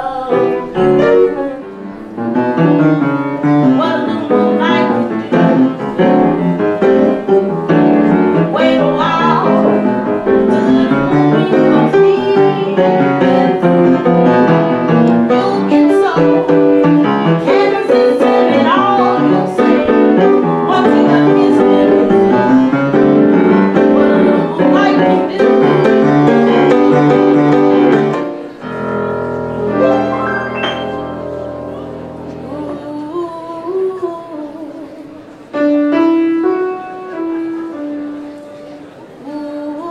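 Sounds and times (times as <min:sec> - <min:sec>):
woman singing: 0:00.0 - 0:01.7, 0:03.4 - 0:06.6, 0:07.7 - 0:27.1, 0:32.4 - 0:35.3, 0:39.2 - 0:39.9
piano accompaniment: 0:00.0 - 0:39.9.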